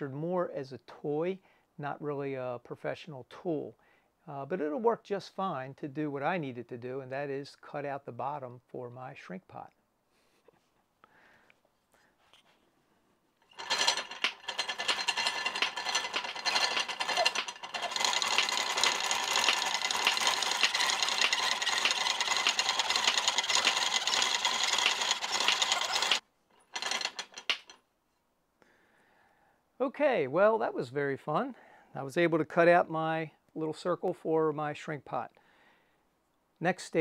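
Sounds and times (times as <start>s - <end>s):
scroll saw blade rattling: 13.4s - 27.8s.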